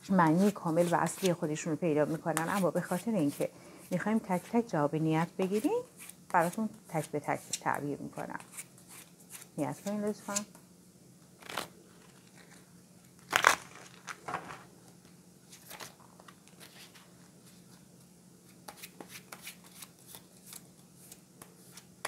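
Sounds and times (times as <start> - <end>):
faint steady hum: 0.0 - 22.0
playing cards shuffled by hand: 11.4 - 14.6.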